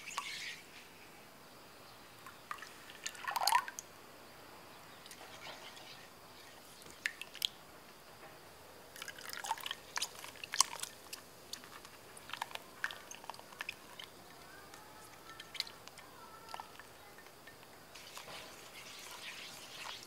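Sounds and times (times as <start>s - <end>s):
small wet clicks and splats: 6.5s - 7.6s, 9.0s - 20.0s
spatula scraping wet mixture: 18.0s - 20.0s.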